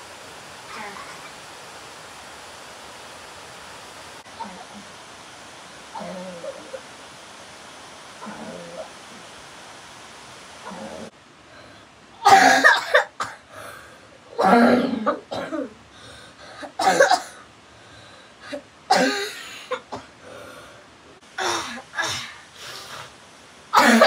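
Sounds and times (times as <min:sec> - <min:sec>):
boy coughing: 0:12.2 - 0:13.4, 0:14.4 - 0:15.7, 0:16.8 - 0:17.4, 0:18.9 - 0:20.0, 0:23.8 - 0:24.0.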